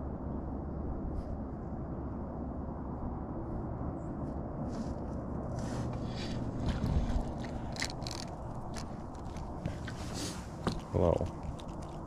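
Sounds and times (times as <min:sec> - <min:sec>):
steady low rumble: 0:00.0 - 0:12.0
clicks and scrapes of handling: 0:05.5 - 0:12.0.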